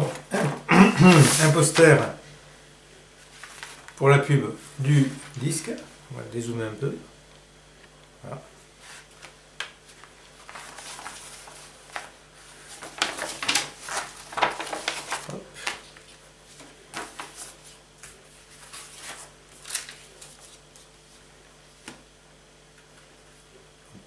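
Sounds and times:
paper rustling and crinkling: 0.0 - 2.0, 3.2 - 4.0, 8.8 - 22.0.

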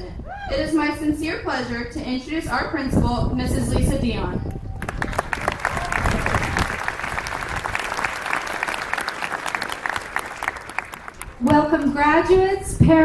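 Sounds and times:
audience clapping: 4.8 - 12.0.

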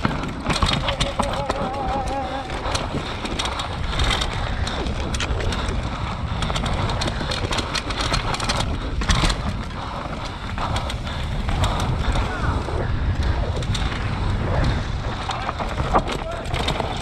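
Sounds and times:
knocks and rattles from bumps: 0.0 - 5.8
motorcycle engine: 0.0 - 15.2
wind on microphone: 0.0 - 17.0.

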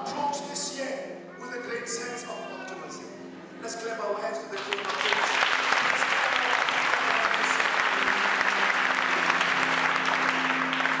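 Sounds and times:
crowd applauding: 4.6 - 11.0.

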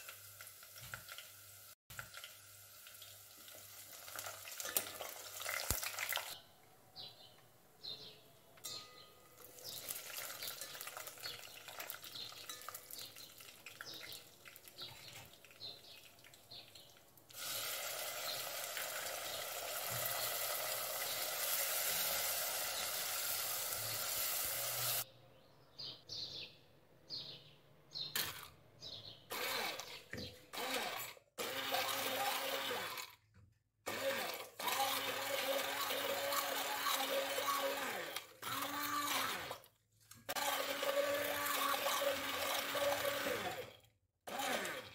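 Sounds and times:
onions sizzling in hot oil: 0.0 - 6.4, 17.3 - 25.0
electric hand blender whirring: 17.4 - 25.0, 29.3 - 33.2, 33.9 - 39.6, 40.3 - 43.7, 44.3 - 44.9.

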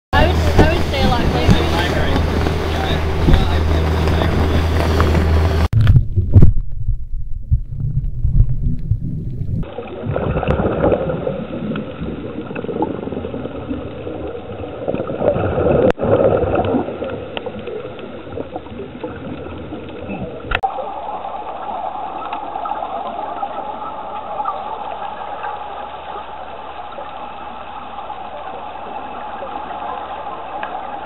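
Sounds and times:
underwater wash: 0.1 - 31.0
dull underwater thumps and rumble: 0.2 - 20.8
regulator bubbles gurgling: 0.2 - 31.0.

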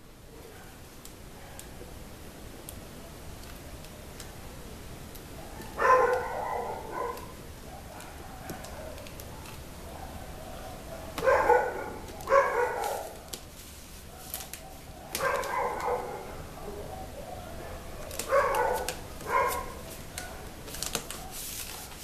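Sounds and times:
dog barking: 0.3 - 0.8, 1.4 - 1.8, 5.4 - 13.2, 14.1 - 20.6.

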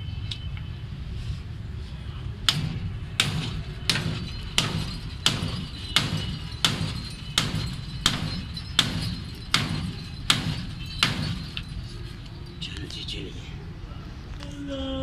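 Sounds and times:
hammer striking steel: 2.4 - 11.8.

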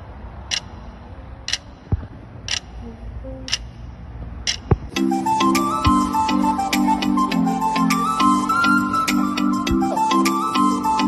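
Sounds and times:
clock ticking: 0.4 - 5.1
music: 4.9 - 11.0.

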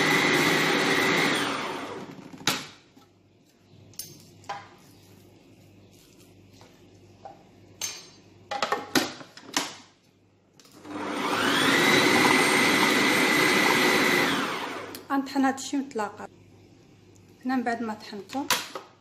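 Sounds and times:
food processor motor whining: 0.0 - 2.4, 10.7 - 15.0.

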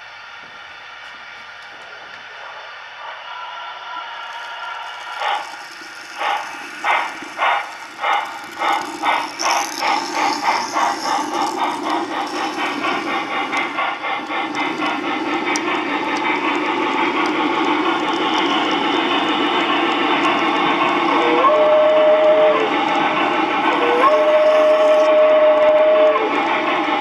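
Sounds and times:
steam locomotive chuffing: 0.2 - 27.0.

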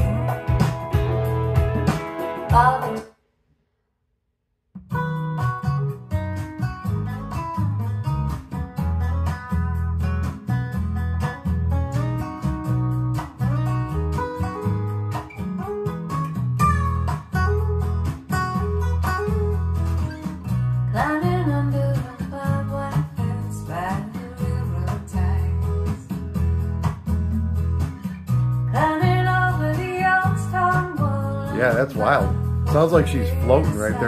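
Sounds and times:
bass line: 0.0 - 3.0, 4.8 - 34.0
acoustic guitar: 0.0 - 3.1, 4.8 - 34.0
woman singing: 2.5 - 3.0, 20.9 - 26.1, 28.7 - 34.0.

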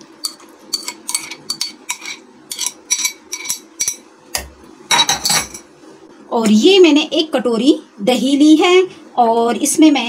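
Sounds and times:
metal spoon scraping glass bowl: 0.2 - 4.0.

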